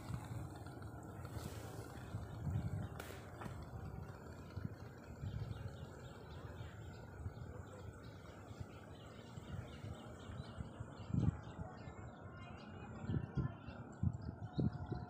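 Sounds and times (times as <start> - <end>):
low rumble on microphone: 0.0 - 15.0
small birds chirping: 0.0 - 15.0.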